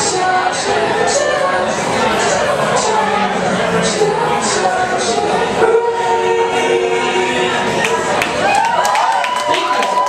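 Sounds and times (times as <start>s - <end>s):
crowd talking: 0.0s - 10.0s.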